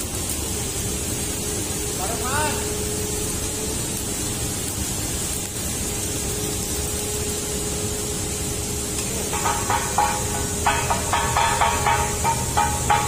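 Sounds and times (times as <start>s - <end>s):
arc welder hissing: 0.0s - 13.0s
hammer striking metal: 9.3s - 13.0s.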